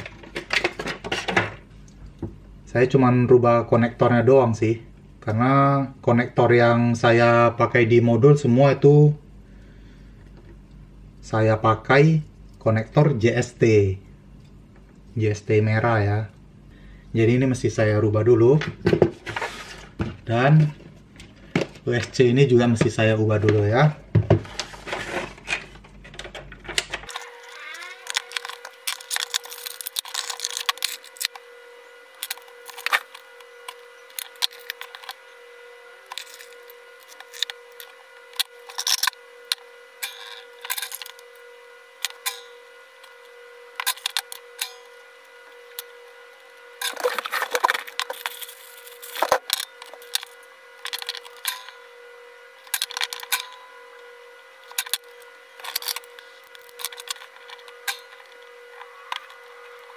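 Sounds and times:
clatter of tools and wires: 0.0 - 2.3, 18.5 - 31.5, 32.1 - 35.4, 36.0 - 51.9, 52.5 - 59.9.

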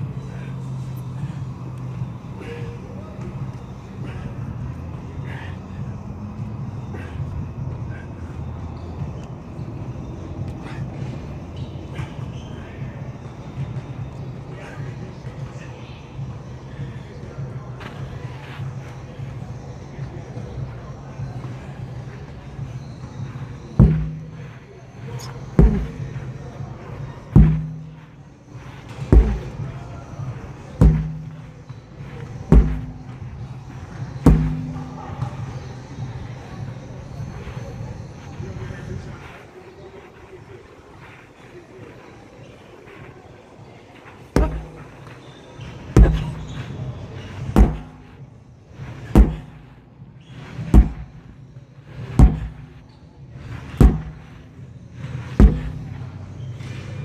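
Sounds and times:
sledgehammer thudding on rubber tire: 23.6 - 26.4, 27.2 - 28.2, 28.8 - 36.0, 44.2 - 45.0, 45.7 - 57.0.

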